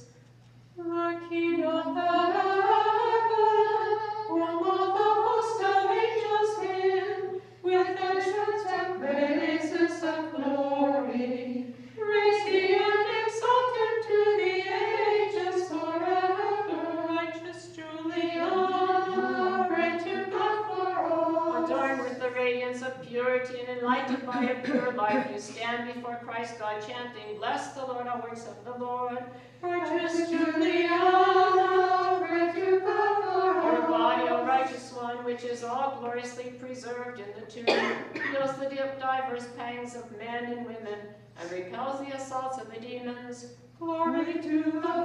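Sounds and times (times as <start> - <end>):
women singing a chant unaccompanied: 0.8 - 25.6, 29.6 - 36.2, 43.8 - 45.0.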